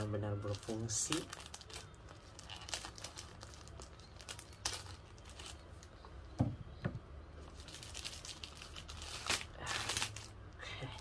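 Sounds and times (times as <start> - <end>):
plastic bag crinkling: 0.0 - 6.4, 7.3 - 11.0
dull thumps: 6.4 - 7.1.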